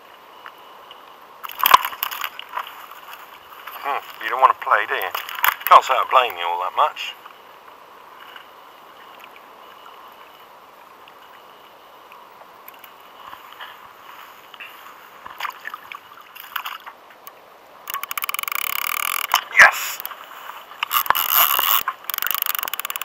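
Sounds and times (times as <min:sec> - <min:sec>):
water lapping against kayak: 0:12.4 - 0:23.0
fishing reel clicking: 0:17.9 - 0:20.1, 0:20.8 - 0:23.0.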